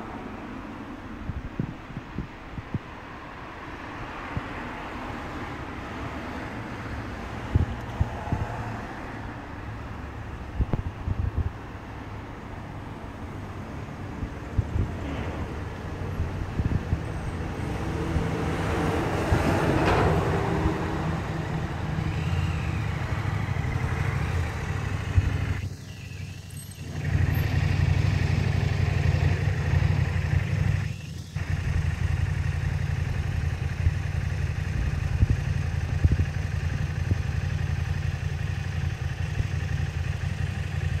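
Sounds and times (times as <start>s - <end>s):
wind buffeting microphone: 1.0s - 4.9s, 7.4s - 8.7s, 10.4s - 11.8s, 14.1s - 26.0s, 33.7s - 37.2s.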